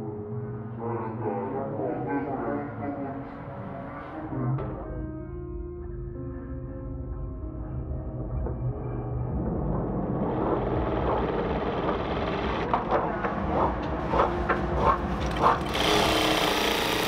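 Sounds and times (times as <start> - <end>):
sewing machine stitching: 15.3 - 17.0.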